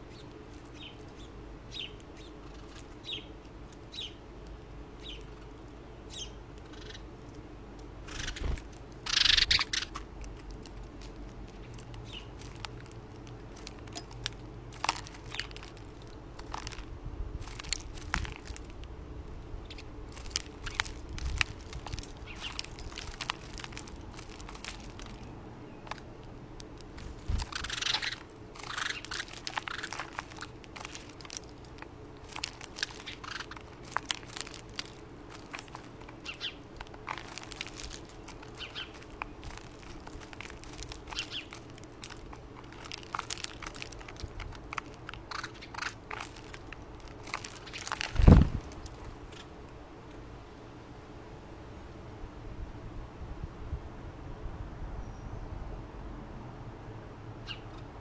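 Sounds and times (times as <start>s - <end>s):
beaks picking at seed: 0.0s - 49.8s
wing flutters: 8.0s - 10.1s, 26.9s - 49.5s.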